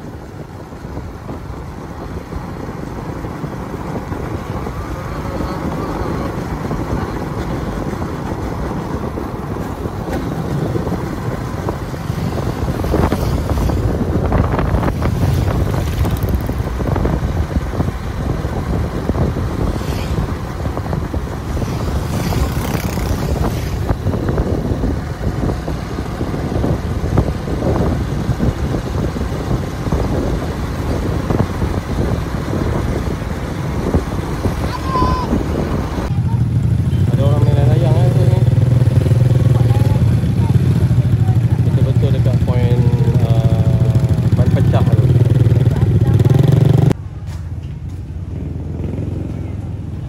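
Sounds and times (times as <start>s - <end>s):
low vehicle rumble: 0.0s - 50.0s
wind buffeting microphone: 0.0s - 50.0s.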